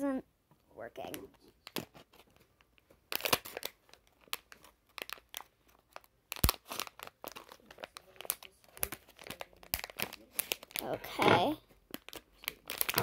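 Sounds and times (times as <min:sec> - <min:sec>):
plastic packet crinkling: 0:03.1 - 0:13.0.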